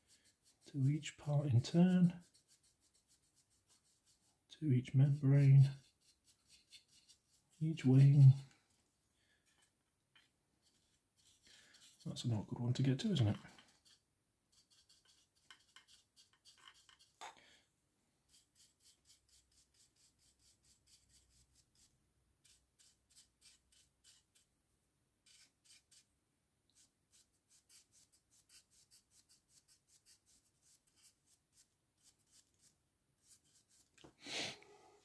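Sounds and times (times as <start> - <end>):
dry brush strokes on plastic: 0.0 - 8.8, 9.4 - 17.3, 18.3 - 24.5, 25.2 - 26.1, 26.7 - 35.0.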